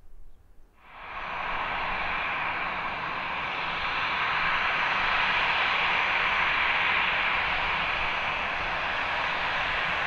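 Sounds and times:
jet engines taxiing: 0:00.8 - 0:10.0.

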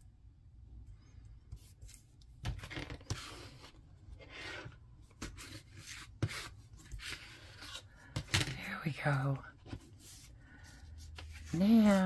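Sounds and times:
paper rustling and scraping: 0:01.6 - 0:08.3, 0:09.1 - 0:12.0.

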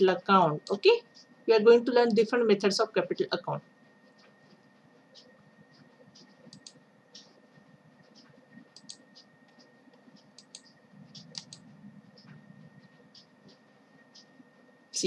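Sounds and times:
small clicks and light scratches: 0:00.6 - 0:01.4, 0:03.9 - 0:14.8.

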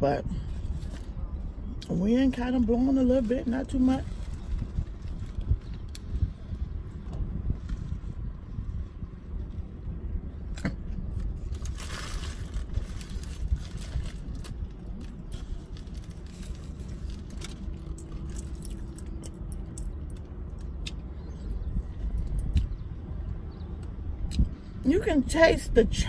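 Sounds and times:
low rumble: 0:00.0 - 0:25.9
paper wrapper crinkling: 0:11.4 - 0:19.1.

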